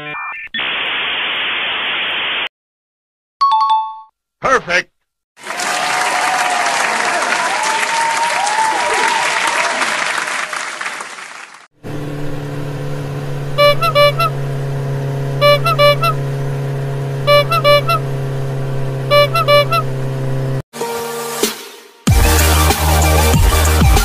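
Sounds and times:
applause: 5.4 - 11.7
vehicle engine hum: 11.7 - 20.6
double horn beep: 13.5 - 14.4, 15.4 - 16.2, 17.2 - 18.1, 19.0 - 19.9.

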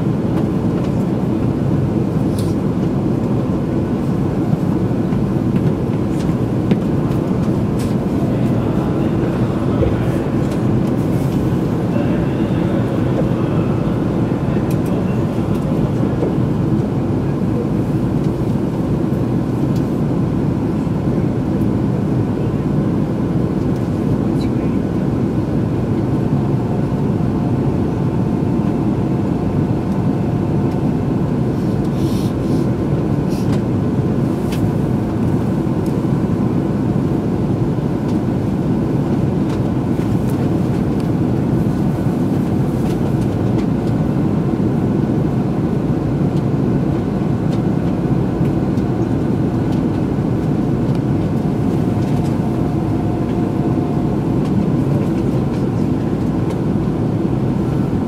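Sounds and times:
train cabin ventilation hum: 0.0 - 58.0.

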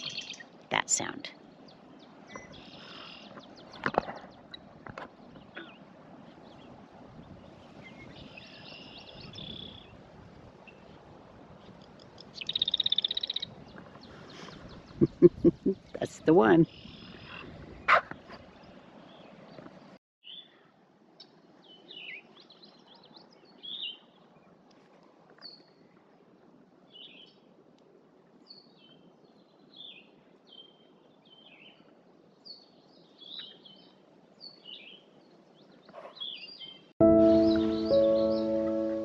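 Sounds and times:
birds chirping: 0.0 - 10.0, 11.8 - 20.5, 33.1 - 39.0.

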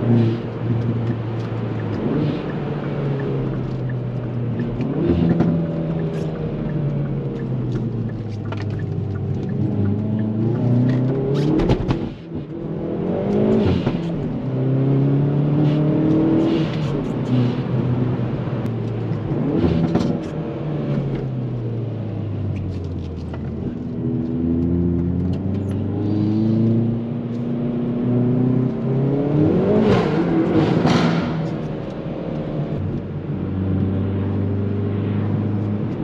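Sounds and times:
car engine accelerating through gears: 0.0 - 36.0
exhaust cracks on shifts: 0.4 - 12.5.

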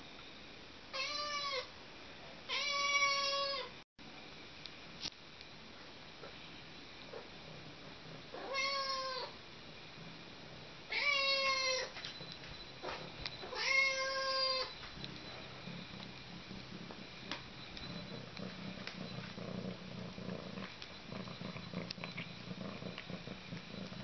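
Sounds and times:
kitten purring: 7.1 - 24.0.

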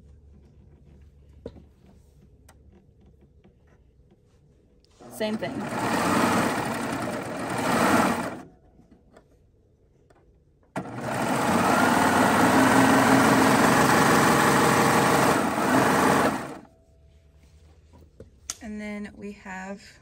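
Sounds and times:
serger sewing machine running: 5.0 - 8.5, 10.8 - 16.7.

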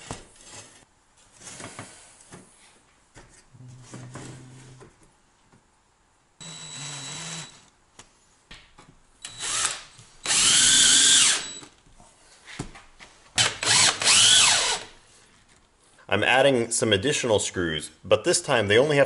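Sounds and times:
cordless drill driving screws: 6.4 - 7.7, 9.2 - 11.7, 13.4 - 14.9.

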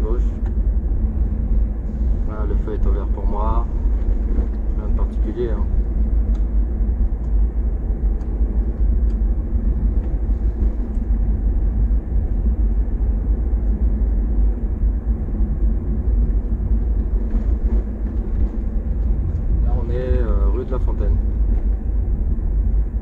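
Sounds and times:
road and engine rumble: 0.0 - 23.0.

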